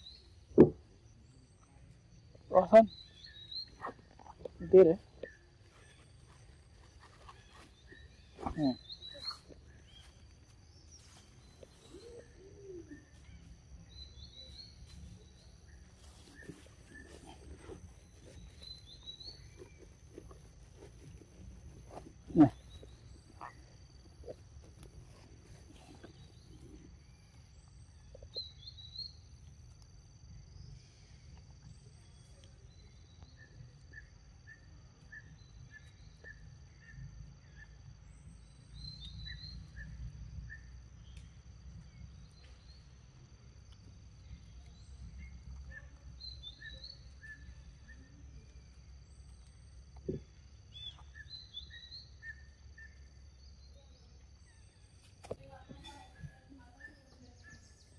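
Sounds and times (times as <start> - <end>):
birds chirping: 0.0 - 29.4.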